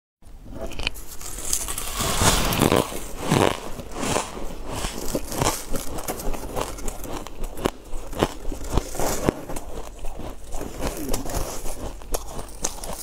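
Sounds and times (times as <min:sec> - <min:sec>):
crunching frozen ice: 0:00.7 - 0:13.0.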